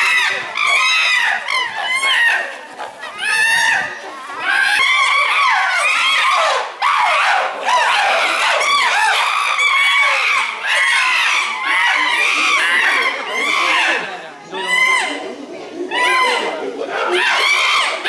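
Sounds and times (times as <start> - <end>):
chimpanzees screaming: 0.0 - 18.0.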